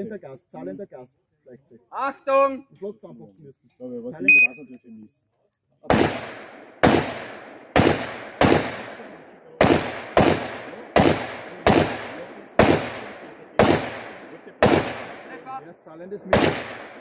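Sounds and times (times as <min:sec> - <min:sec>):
rifle shots with echo: 0:05.9 - 0:15.6, 0:16.2 - 0:17.0.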